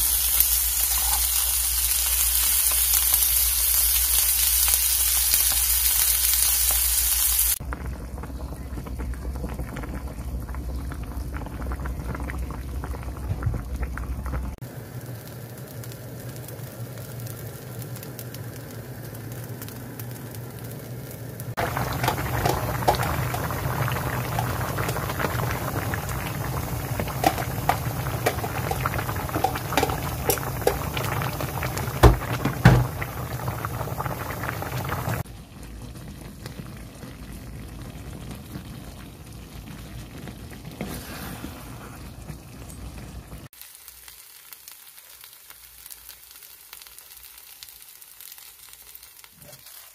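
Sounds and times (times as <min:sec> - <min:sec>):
pancake sizzling in a frying pan: 0:00.0 - 0:07.7, 0:14.5 - 0:35.3, 0:43.4 - 0:49.9
stew bubbling at a boil: 0:07.5 - 0:14.8, 0:21.5 - 0:43.6.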